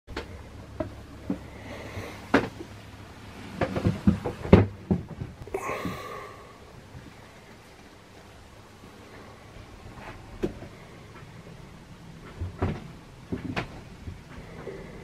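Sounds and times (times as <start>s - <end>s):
knocks and thumps in wooden cabin: 0.1s - 2.7s, 3.5s - 6.4s, 9.9s - 11.4s, 12.2s - 14.8s
low steady hum: 0.1s - 15.0s.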